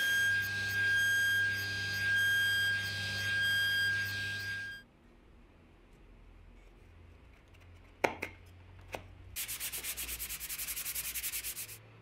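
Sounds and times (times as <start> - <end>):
hand-sanding wood block: 9.4 - 11.8.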